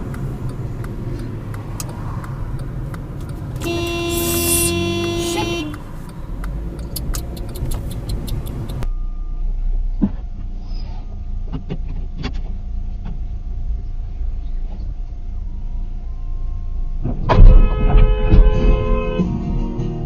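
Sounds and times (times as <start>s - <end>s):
sharp ticks: 0.0s - 8.8s
car cabin rumble: 0.0s - 8.9s.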